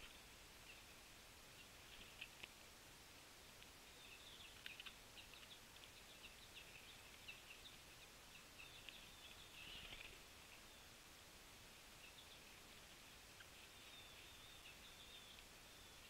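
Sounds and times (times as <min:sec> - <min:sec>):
faint outdoor hiss: 0:00.0 - 0:16.0
songbirds chirping: 0:00.0 - 0:16.0.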